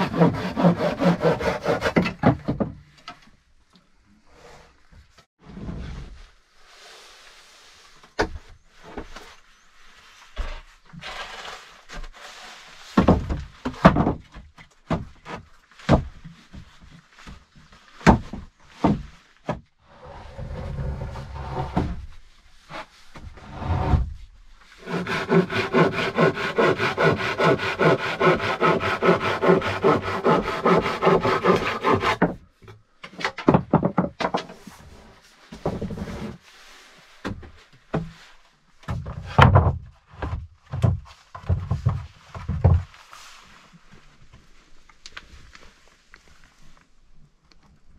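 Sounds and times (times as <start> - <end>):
plank dragged across boards: 0.0 - 2.7, 4.3 - 14.2, 14.9 - 32.5, 33.1 - 43.6
wooden boards knocking: 33.3 - 34.5.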